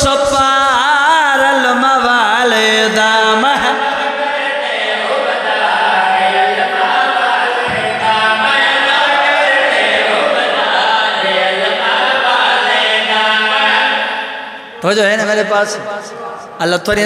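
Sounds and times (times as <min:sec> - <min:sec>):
man singing devotional verse: 0:00.0 - 0:14.1, 0:14.7 - 0:17.0
group of voices chanting: 0:03.6 - 0:14.9.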